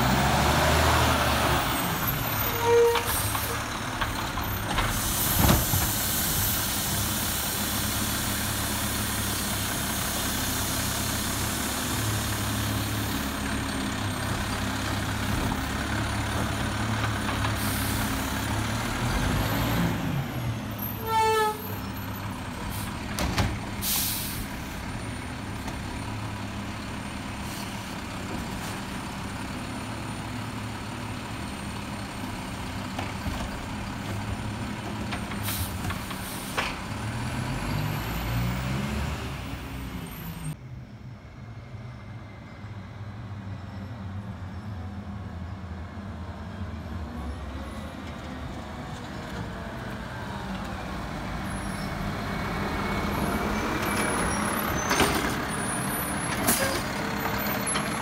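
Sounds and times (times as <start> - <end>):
air brake hisses: 4.9 - 9.5, 23.8 - 24.5.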